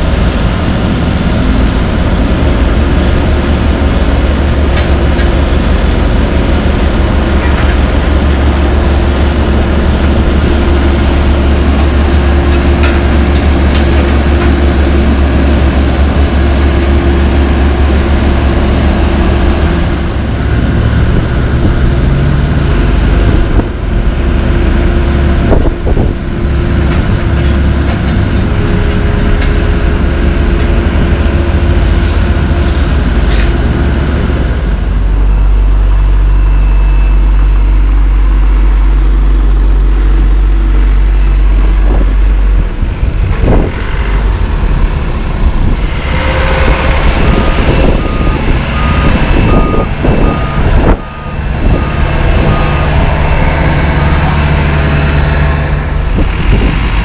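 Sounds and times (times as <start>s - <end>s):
diesel roller engines running: 0.0s - 57.0s
reversing alarm beeping: 34.8s - 39.0s, 45.8s - 55.8s.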